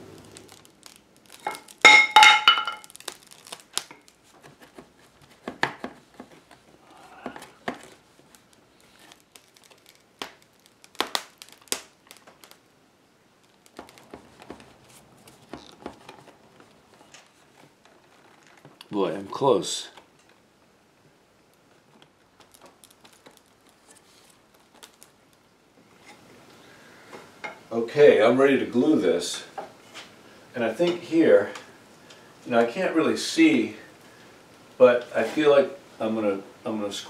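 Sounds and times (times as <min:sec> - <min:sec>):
wooden chair joints creaking: 0:13.4 - 0:18.9.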